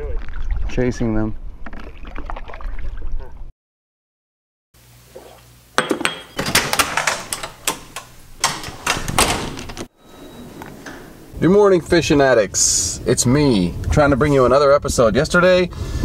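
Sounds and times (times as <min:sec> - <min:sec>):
hard objects knocking and clinking: 0:05.8 - 0:08.0.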